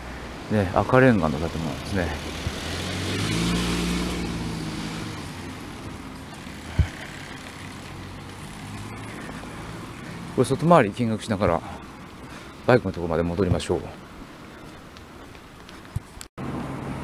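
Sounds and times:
vehicle passing: 0.0 - 12.7
traffic noise: 0.0 - 17.0.

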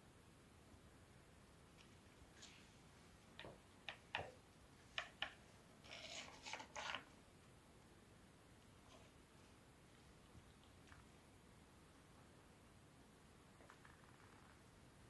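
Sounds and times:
wooden balls clicking in track: 3.4 - 5.4.

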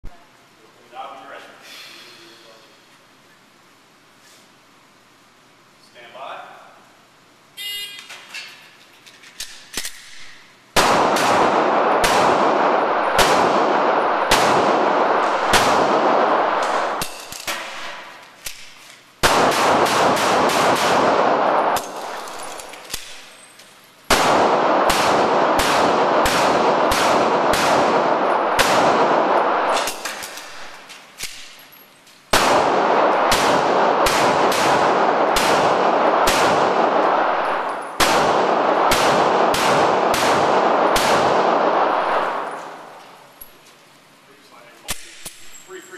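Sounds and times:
handgun shots echoing indoors: 9.4 - 23.4, 24.1 - 31.6, 32.3 - 43.2, 44.8 - 45.6.

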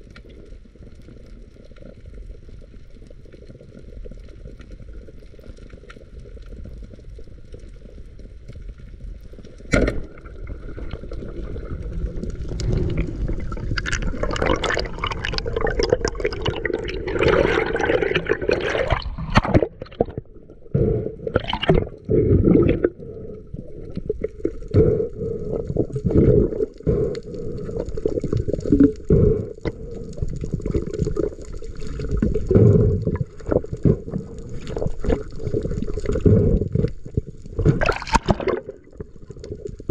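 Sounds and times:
water gurgling and rushing: 9.7 - 39.9.

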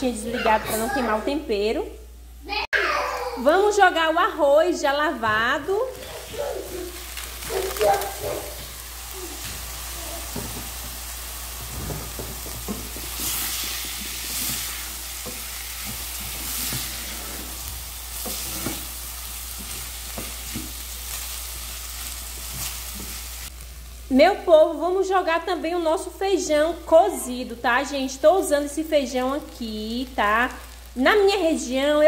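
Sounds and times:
rice sizzling in a pot: 3.4 - 32.0
wooden spoon scraping a pot: 5.9 - 7.1, 11.6 - 20.8.

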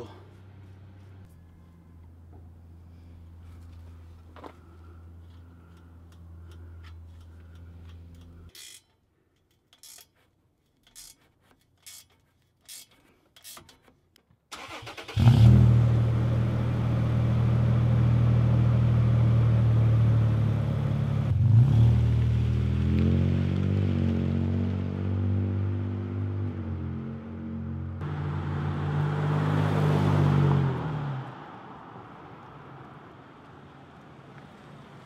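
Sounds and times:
truck engine starting and idling: 14.5 - 21.9.

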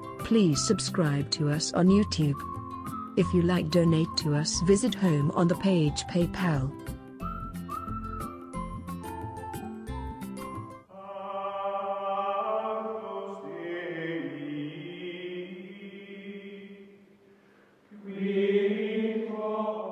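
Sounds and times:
chant-like vocal music: 10.9 - 17.0, 17.9 - 19.9.

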